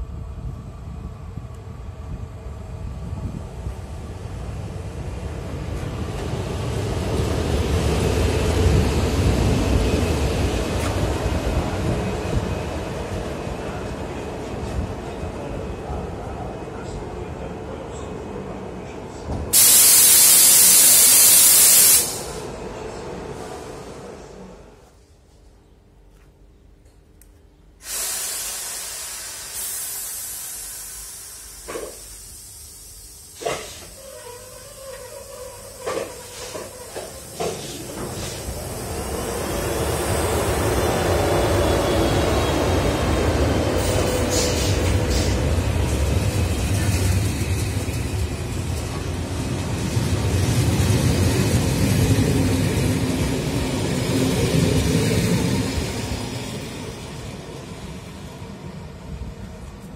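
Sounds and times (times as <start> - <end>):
train wheels rumbling on rails: 0.0 - 25.0, 27.8 - 59.9
compressed air hissing: 19.6 - 22.4, 27.8 - 38.8, 43.8 - 45.5.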